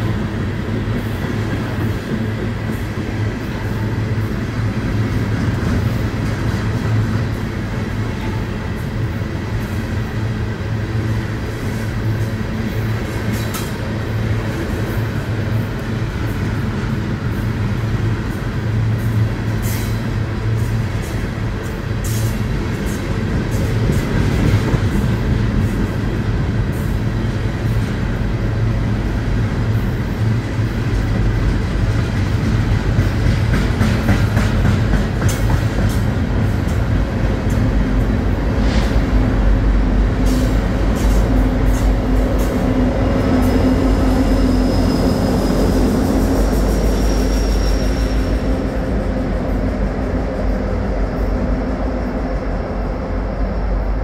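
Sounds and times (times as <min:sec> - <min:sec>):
diesel locomotive drone: 0:00.0 - 0:54.0
train wheels rumbling on rails: 0:00.0 - 0:54.0
high wheel squeal: 0:43.4 - 0:48.9.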